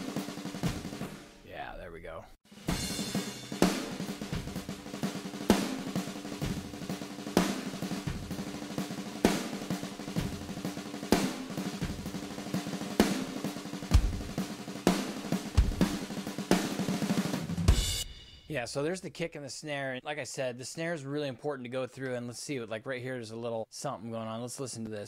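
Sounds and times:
kick drum hits: 13.9s - 14.3s.

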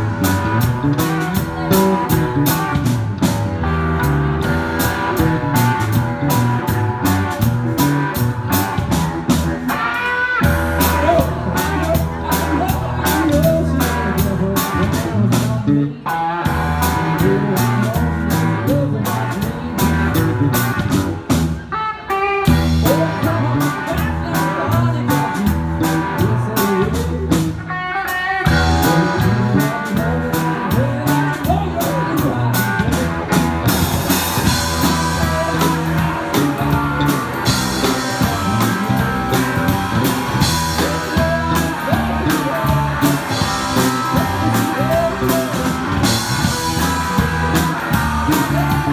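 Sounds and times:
electric guitars: 0.0s - 48.9s
drum beat: 28.5s - 48.9s.

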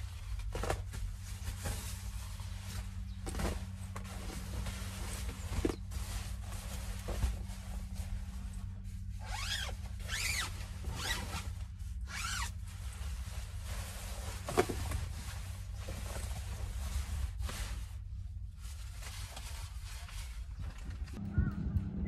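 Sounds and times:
fabric rustling: 0.0s - 20.8s
sleeping bag zipper: 9.2s - 12.6s.

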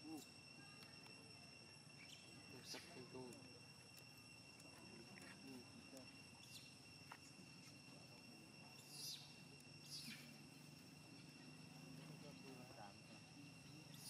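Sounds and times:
insect trilling: 0.0s - 14.0s
high chirps: 8.6s - 12.6s.

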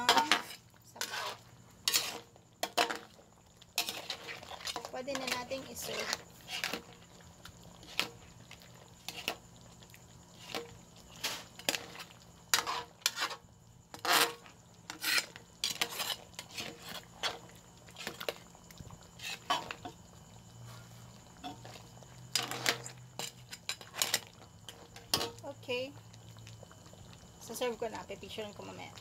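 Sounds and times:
metal utensil scraping cooking pot: 0.0s - 3.2s, 3.8s - 7.0s, 10.4s - 18.4s, 19.2s - 20.0s, 21.4s - 25.4s.

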